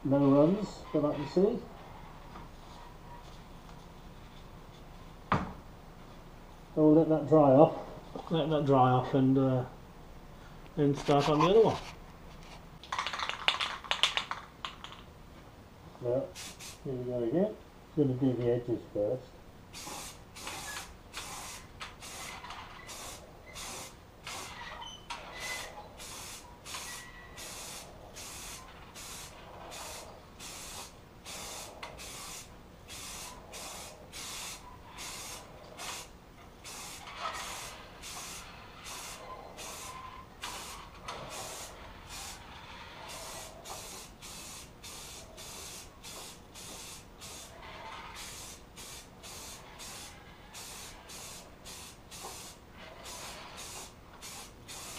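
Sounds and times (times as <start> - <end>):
aerosol can spraying: 19.8 - 24.6, 25.5 - 42.4, 43.1 - 47.5, 48.2 - 54.9.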